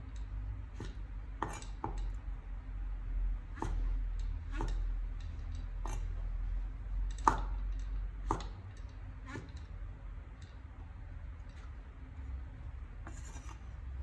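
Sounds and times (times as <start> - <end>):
cleaver chopping on wooden board: 0.8 - 2.0, 3.5 - 3.9, 4.5 - 4.8, 7.2 - 7.6, 8.2 - 8.6.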